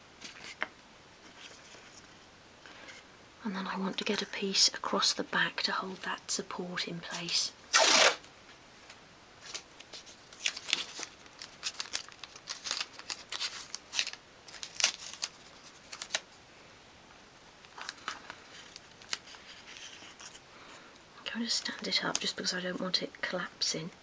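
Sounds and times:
masking tape crackling and tearing: 7.7 - 8.3, 9.4 - 16.2, 17.7 - 20.4.

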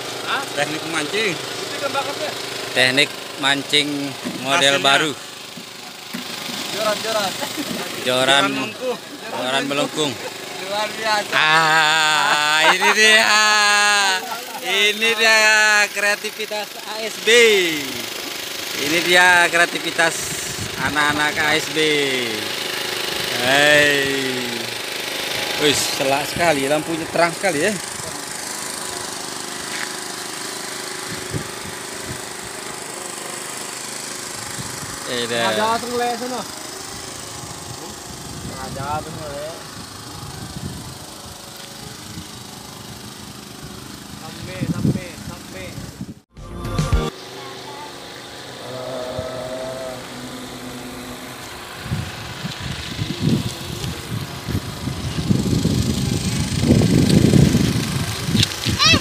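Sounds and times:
small engine running: 0.0 - 59.0
wind buffeting microphone: 37.5 - 41.2, 51.8 - 59.0.

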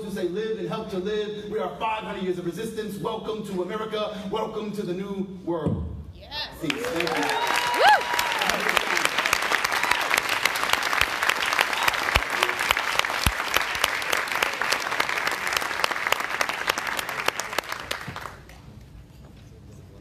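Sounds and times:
crowd applauding: 6.6 - 18.7.

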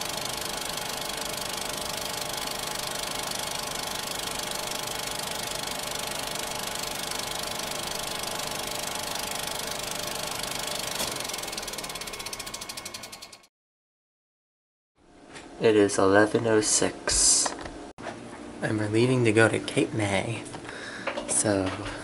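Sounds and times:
film projector whirring and clattering: 0.0 - 13.5
rapid mechanical ticks: 0.0 - 13.5.

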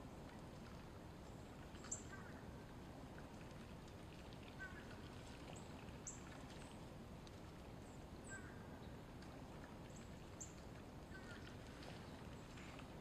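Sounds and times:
ducks splashing in water: 9.2 - 13.0.

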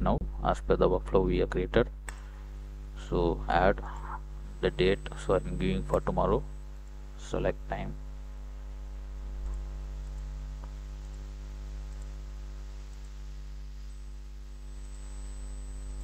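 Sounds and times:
electrical mains hum: 0.0 - 16.0
faint mouse clicks: 11.9 - 12.2.

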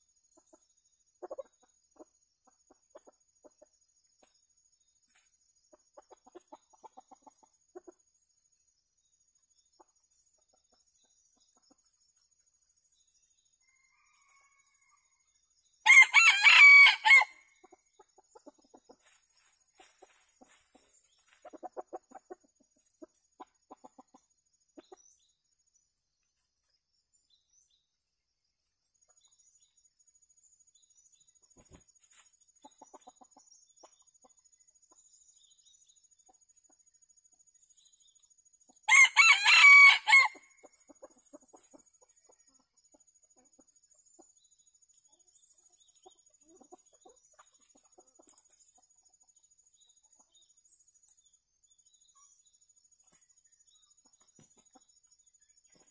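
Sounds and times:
junglefowl clucking softly: 1.2 - 3.6, 19.8 - 24.2
rooster crowing: 15.8 - 17.4, 38.9 - 40.5.

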